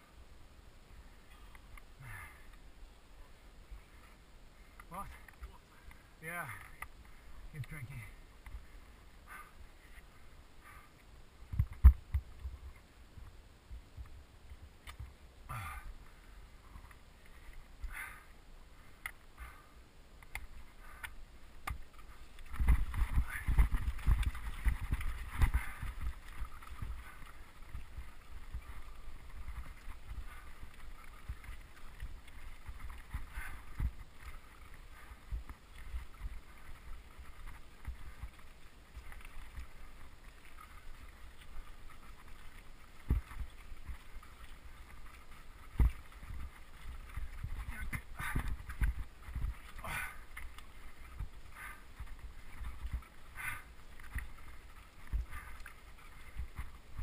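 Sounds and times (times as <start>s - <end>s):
bike rattling over stones: 20.3s - 57.0s
bike tyres crunching gravel: 20.4s - 57.0s.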